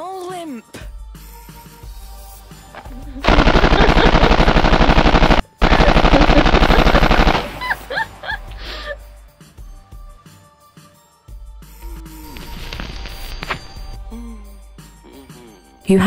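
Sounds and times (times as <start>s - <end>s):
automatic gunfire: 3.2s - 7.6s.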